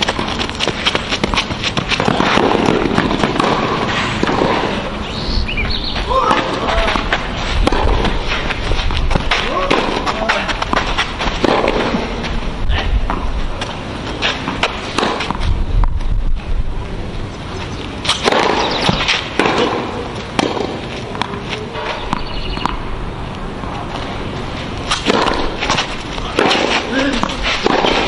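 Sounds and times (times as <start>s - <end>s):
tennis ball bouncing on clay: 0.0s - 4.8s, 5.5s - 12.0s, 13.1s - 16.1s, 18.1s - 22.8s, 24.8s - 28.0s
tennis ball hit by rackets: 0.0s - 5.0s, 6.0s - 12.2s, 13.0s - 16.0s, 18.0s - 22.8s, 24.8s - 28.0s
players' footsteps: 0.0s - 28.0s.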